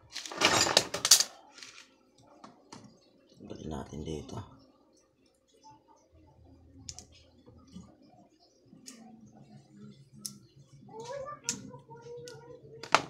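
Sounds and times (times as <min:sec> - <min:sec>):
metal pliers clicking on wires: 0:10.2 - 0:10.4.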